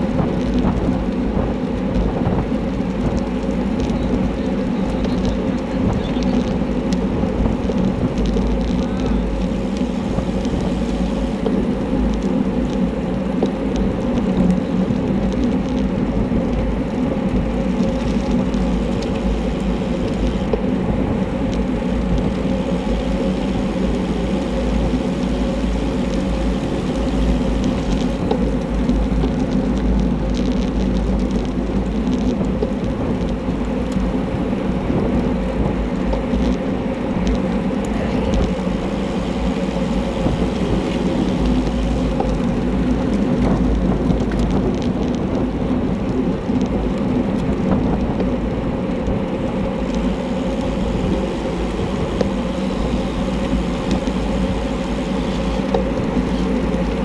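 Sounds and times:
tyre and road noise: 0.0s - 57.0s
wind rushing over microphone: 0.0s - 57.0s.

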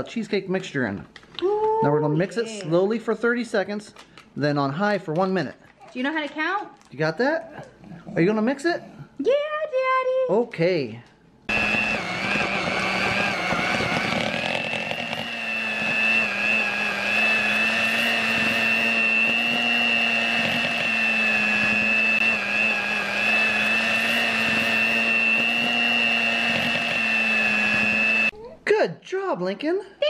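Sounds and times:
electric hand mixer whining: 11.5s - 28.4s.

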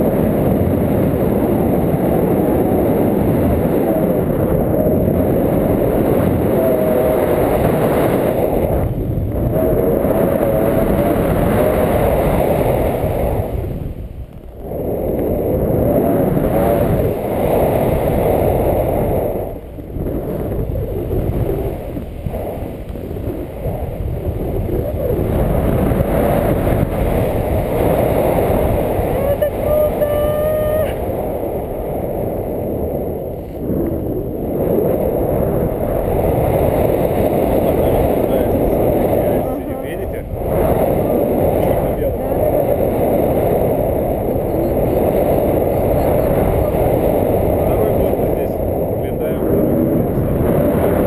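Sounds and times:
wind buffeting microphone: 0.0s - 51.0s.

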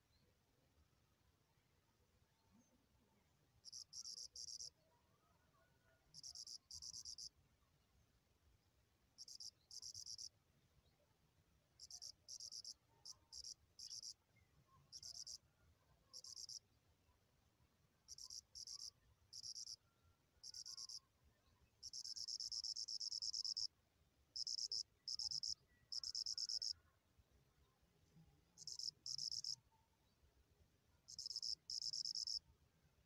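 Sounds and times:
crickets chirping: 3.6s - 4.7s, 6.2s - 7.3s, 9.2s - 10.3s, 11.8s - 14.2s, 14.9s - 15.4s, 16.1s - 16.6s, 18.1s - 19.8s, 20.4s - 21.0s, 21.8s - 23.7s, 24.4s - 26.8s, 28.6s - 29.6s, 31.1s - 32.4s.

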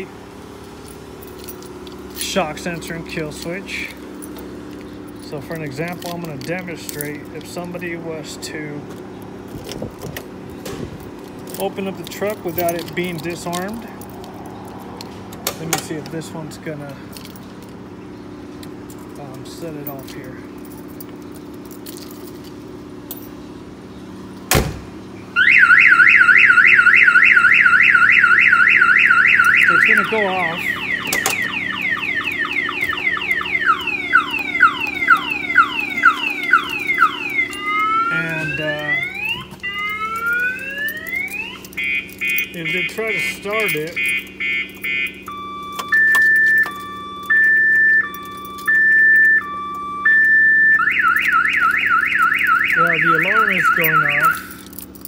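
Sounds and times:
keys jangling: 0.6s - 8.0s, 8.9s - 17.8s, 18.5s - 23.4s, 29.2s - 49.8s, 52.2s - 55.0s
car alarm siren wailing: 25.3s - 55.0s.

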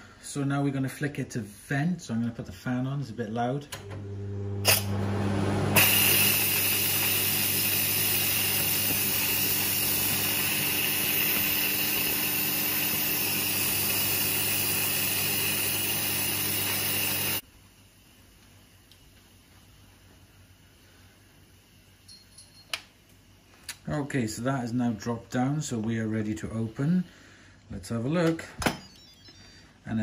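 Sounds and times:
extractor fan humming: 3.8s - 17.4s
pressure cooker venting steam: 4.6s - 17.4s.

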